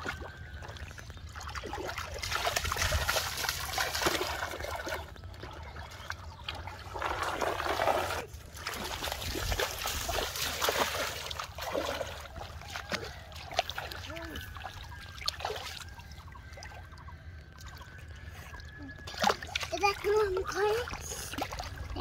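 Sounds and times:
river water splashing: 0:00.0 - 0:22.0.

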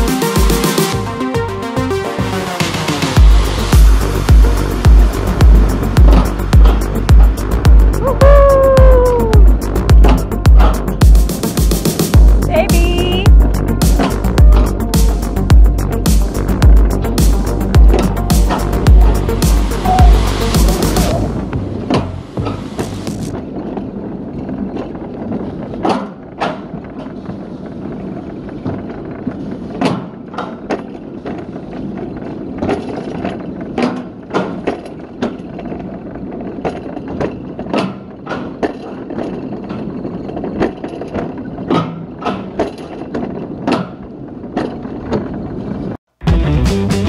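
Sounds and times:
sled rolling rumble in steel track: 0:00.0 - 0:46.0
sharp clicks and knocks: 0:03.1 - 0:08.0, 0:09.4 - 0:23.9, 0:28.5 - 0:45.4.

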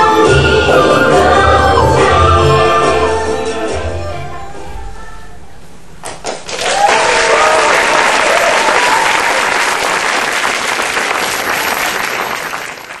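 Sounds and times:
audience applauding: 0:06.1 - 0:13.0.

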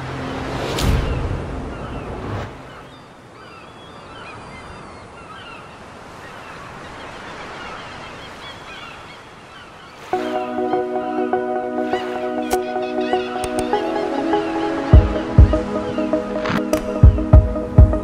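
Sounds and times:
faint wind: 0:00.0 - 0:10.3
birds chirping and crying: 0:01.0 - 0:16.2
music with sustained chords: 0:10.1 - 0:18.0.

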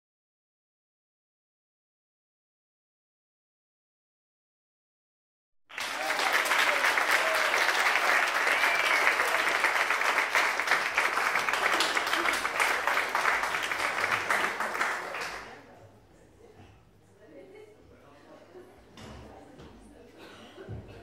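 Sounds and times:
audience applauding: 0:05.7 - 0:15.6
voices among clapping: 0:05.7 - 0:15.7.

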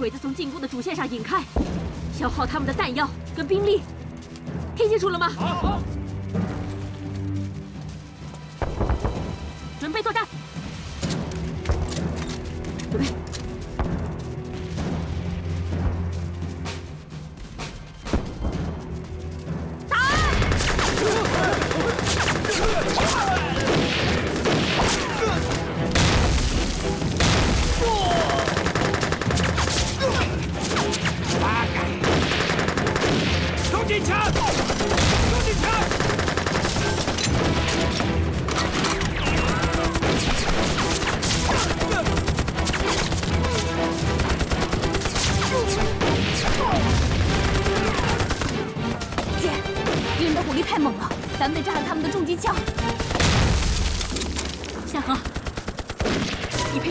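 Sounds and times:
rifle shots: 0:27.2 - 0:30.0, 0:32.0 - 0:33.7, 0:34.3 - 0:50.2
men yelling: 0:27.8 - 0:28.7
rifle gunfire volley: 0:32.0 - 0:33.7, 0:34.3 - 0:37.8.

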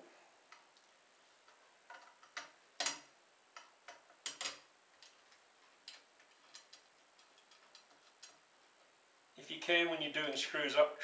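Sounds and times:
faint high whine: 0:00.0 - 0:11.0.

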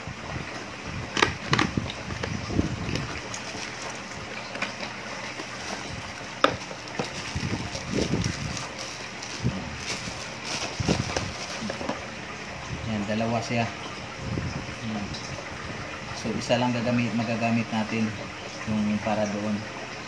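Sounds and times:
plastic bag rustling and crinkling: 0:01.3 - 0:12.1
cardboard box opening: 0:04.6 - 0:12.0.

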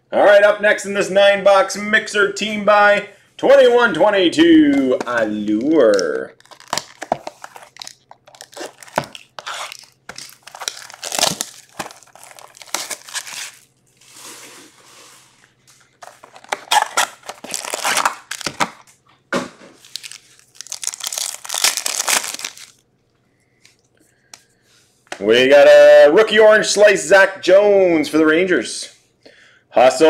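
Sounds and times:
wrappers ripping and crinkling: 0:06.0 - 0:14.8, 0:15.9 - 0:18.9, 0:19.8 - 0:22.8.

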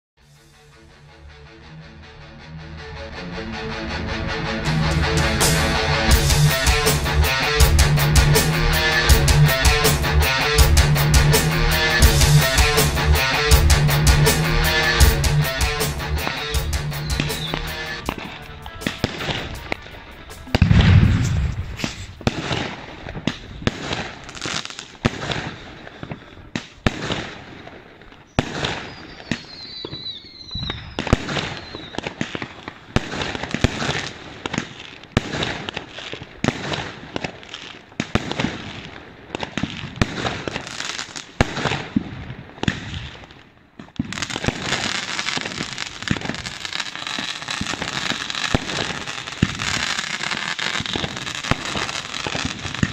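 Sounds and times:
fireworks banging and crackling: 0:15.0 - 0:52.9
firework whistle: 0:15.8 - 0:26.7, 0:28.2 - 0:34.6, 0:44.0 - 0:52.9
deep firework boom: 0:20.5 - 0:24.0.

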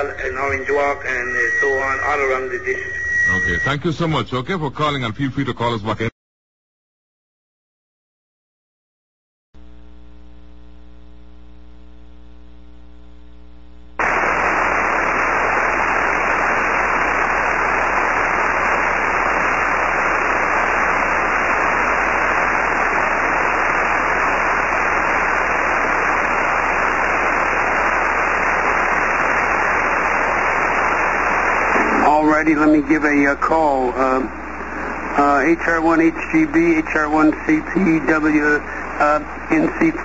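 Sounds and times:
radio static hiss: 0:00.0 - 0:06.1, 0:09.6 - 0:40.0
buzzy electrical hum: 0:09.6 - 0:40.0.

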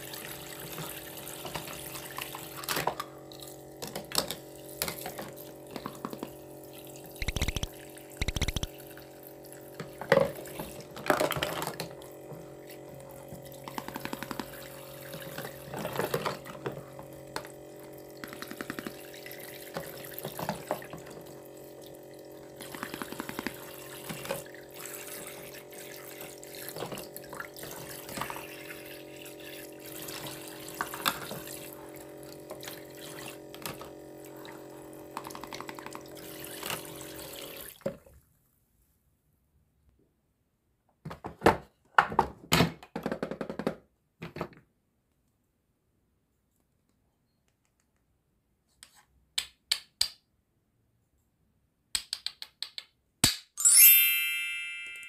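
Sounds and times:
water running into plastic basin: 0:00.0 - 0:38.2
plastic dishes clattering: 0:09.9 - 0:12.0, 0:41.1 - 0:44.6.

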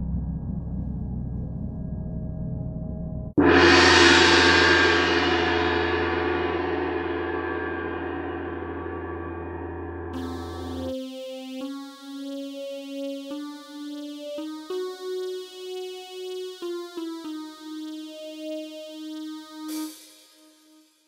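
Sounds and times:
synth melody: 0:10.2 - 0:21.0.

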